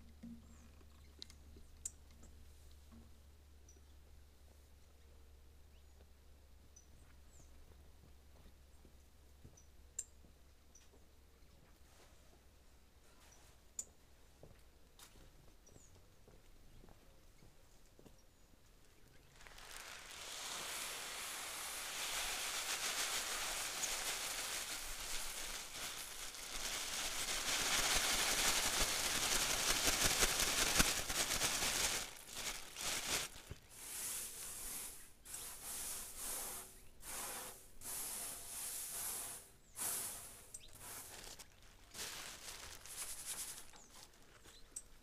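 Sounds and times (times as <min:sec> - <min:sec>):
grain pouring onto a board: 0:19.3 - 0:41.4
hand sweeping grain rasping: 0:19.4 - 0:29.4, 0:33.7 - 0:41.2.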